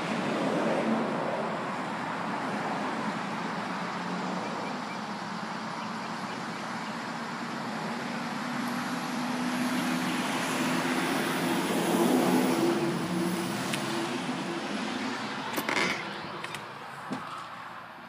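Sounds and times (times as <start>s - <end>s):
vehicle passing by: 6.4s - 17.8s.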